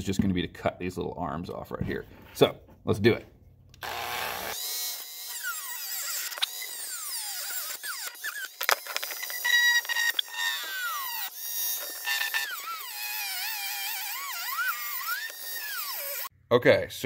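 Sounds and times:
rotary tool grinding metal: 0:03.8 - 0:16.3.

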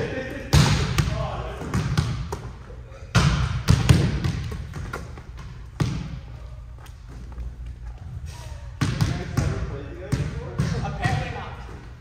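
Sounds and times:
volleyball echoing thuds: 0:00.4 - 0:06.4, 0:08.8 - 0:11.6.

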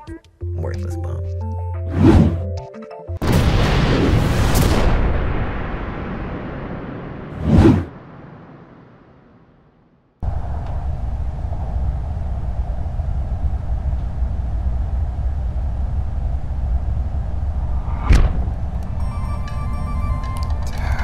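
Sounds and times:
deep rumbling drone: 0:10.2 - 0:21.0
glitchy electronic tones: 0:18.9 - 0:21.0.

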